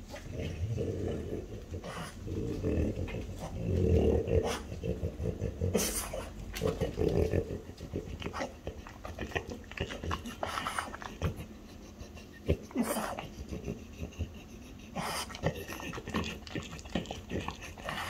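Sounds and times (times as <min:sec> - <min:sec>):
dog sniffing and breathing: 0:01.8 - 0:02.3, 0:04.4 - 0:06.6, 0:07.8 - 0:18.0.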